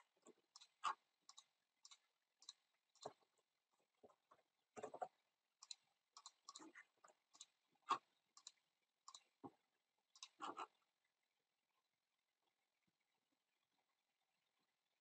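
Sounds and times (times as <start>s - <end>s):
computer mouse and keyboard clicking: 0.2s - 3.2s, 4.8s - 7.6s, 8.4s - 9.3s, 10.2s - 10.6s.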